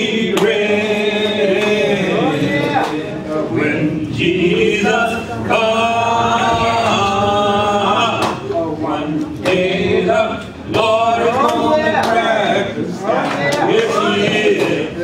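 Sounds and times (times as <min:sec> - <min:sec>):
man and woman singing: 0:00.0 - 0:15.0.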